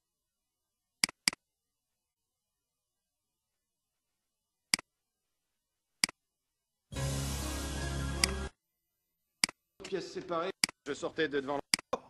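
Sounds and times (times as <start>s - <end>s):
computer mouse clicking: 1.0s - 1.4s, 6.0s - 6.2s, 8.2s - 8.4s, 9.4s - 9.6s.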